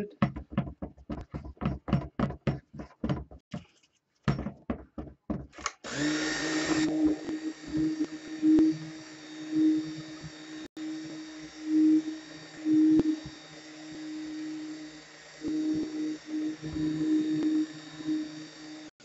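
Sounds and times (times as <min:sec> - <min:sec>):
stick blender motor humming: 0:04.4 - 0:19.0.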